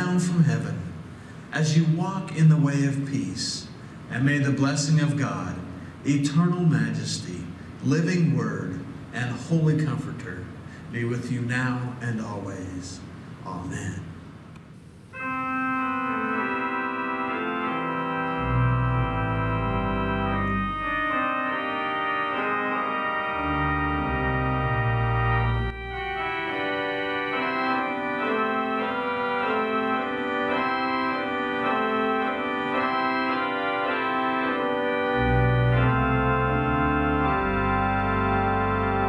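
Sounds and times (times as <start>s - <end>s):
organ chords: 0.0s - 39.0s
deep organ pedal bass notes: 15.2s - 39.0s.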